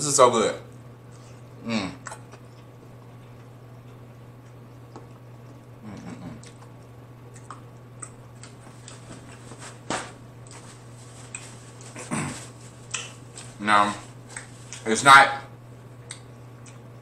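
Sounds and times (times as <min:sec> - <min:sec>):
steady low hum: 0:00.0 - 0:17.0
wet mouth clicks and smacks: 0:06.3 - 0:09.0, 0:16.0 - 0:16.9.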